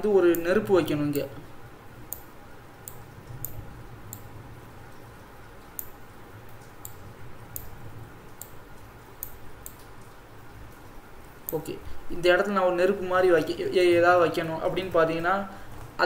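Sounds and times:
faint low hum: 0.0s - 16.0s
computer mouse clicking: 2.1s - 4.3s.

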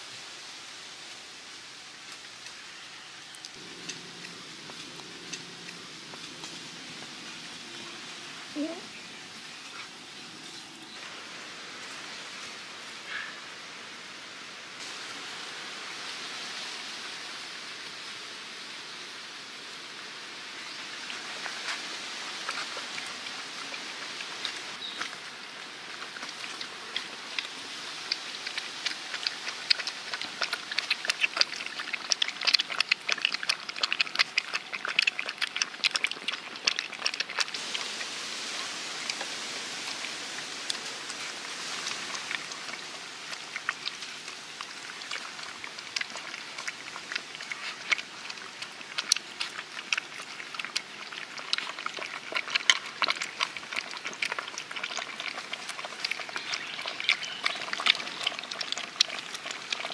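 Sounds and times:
background hiss: 0.0s - 34.1s, 36.0s - 53.0s
puppies lapping and eating: 3.3s - 11.2s, 20.6s - 59.9s.

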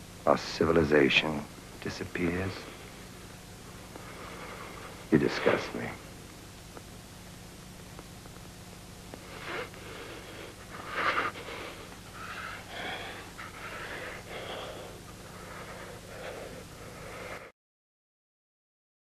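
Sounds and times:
steady low hum: 0.0s - 17.6s
person breathing heavily and gasping: 9.2s - 17.5s.

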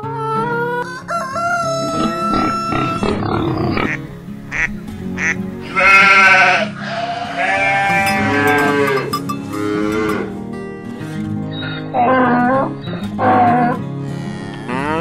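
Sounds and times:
background music: 0.0s - 15.0s
sheep bleating: 5.2s - 9.1s.

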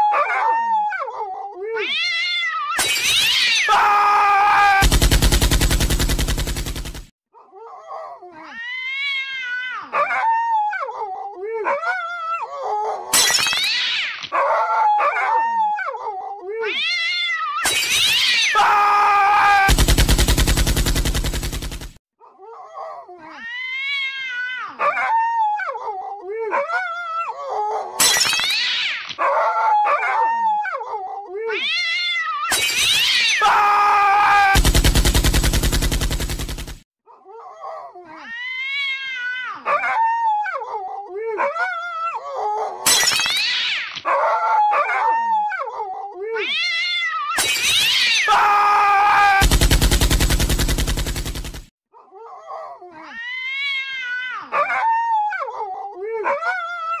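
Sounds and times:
cat meowing and yowling: 0.0s - 4.8s, 7.9s - 19.7s, 22.8s - 34.6s, 37.6s - 49.4s, 52.2s - 57.0s.

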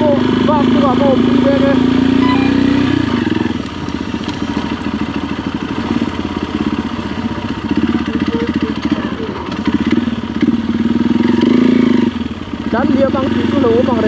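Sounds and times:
motorcycle engine running: 0.0s - 14.0s.

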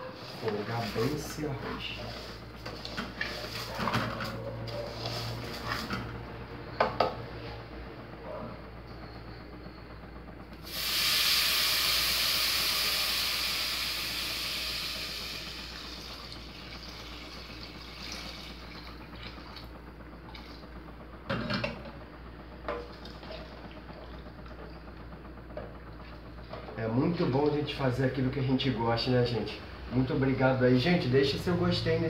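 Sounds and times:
loud hiss of sizzling and steam: 10.6s - 15.8s.

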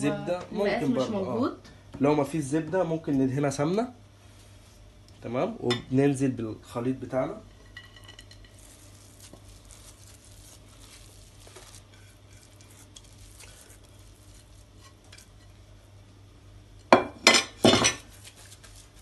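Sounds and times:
mixture scraping and rustling: 7.5s - 15.8s, 17.5s - 19.0s.

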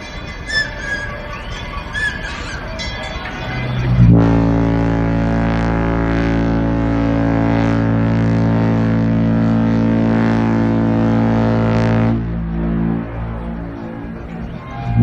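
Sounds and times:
deep ship's horn blast: 3.6s - 15.0s.

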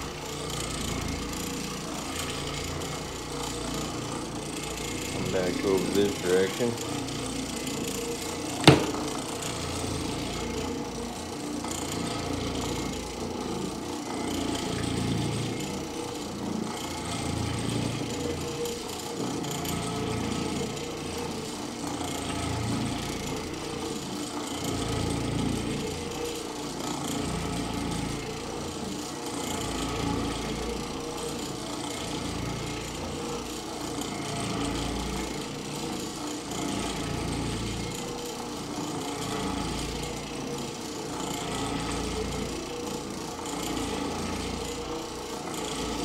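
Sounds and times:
floor machine motor hum: 0.0s - 46.0s
sharp knock: 8.6s - 9.1s.

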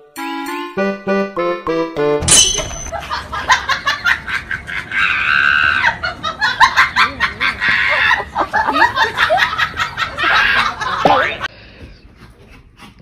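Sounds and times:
laughter-like squeaky vocal sounds: 2.9s - 11.5s.

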